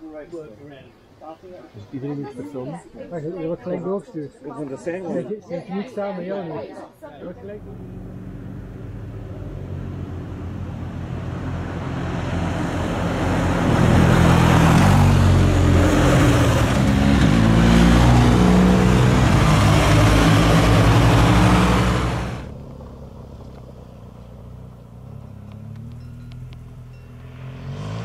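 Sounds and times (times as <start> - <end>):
broad rushing noise: 8.0 - 22.5.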